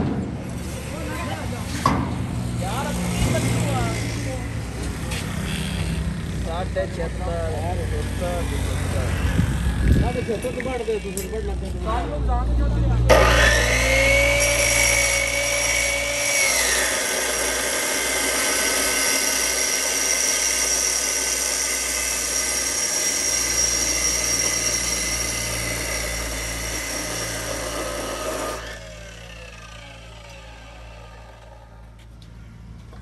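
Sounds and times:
chop saw motor whine: 0:02.6 - 0:11.7, 0:13.1 - 0:33.0
cut-off wheel grinding steel pipe: 0:13.1 - 0:32.0.

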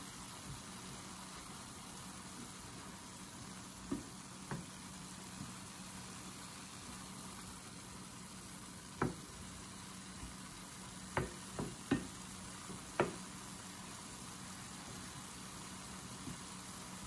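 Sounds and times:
faint steady hiss: 0:00.0 - 0:17.0
wooden spoon knocking against pan: 0:03.9 - 0:04.7, 0:09.0 - 0:09.4, 0:11.1 - 0:13.3.

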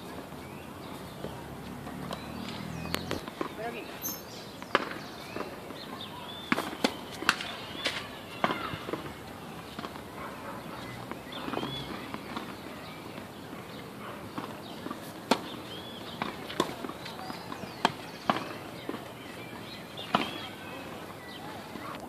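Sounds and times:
birds chirping: 0:00.0 - 0:22.0
tennis balls popping: 0:04.5 - 0:10.2, 0:11.0 - 0:20.6.

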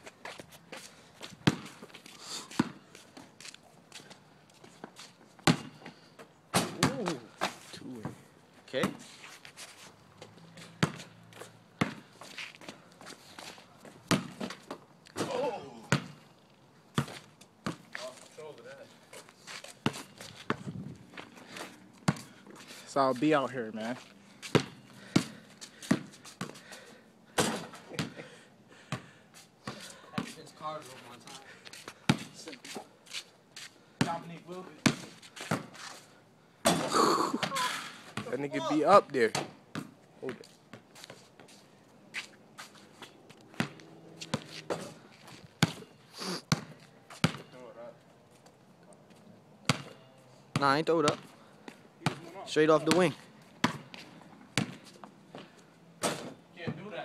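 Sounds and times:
footsteps scuffing on pavement: 0:00.0 - 0:05.6, 0:08.9 - 0:14.0, 0:17.0 - 0:26.6, 0:29.4 - 0:33.8, 0:40.3 - 0:46.1
basketball bouncing on asphalt: 0:00.1 - 0:03.3, 0:04.0 - 0:08.2, 0:10.2 - 0:18.2, 0:19.1 - 0:32.8, 0:33.6 - 0:36.0, 0:36.6 - 0:38.5, 0:39.3 - 0:47.6, 0:49.6 - 0:57.0.

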